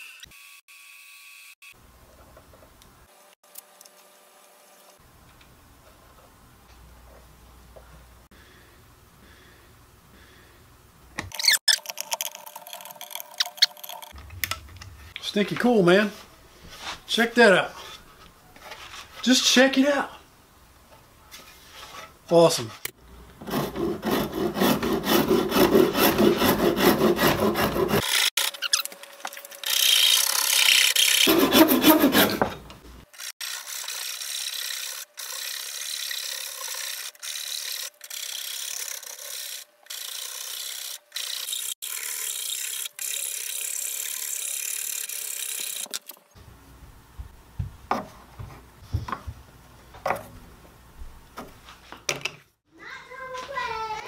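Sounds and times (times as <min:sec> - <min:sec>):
metal file stroking wood: 0:21.5 - 0:28.1, 0:30.9 - 0:32.6.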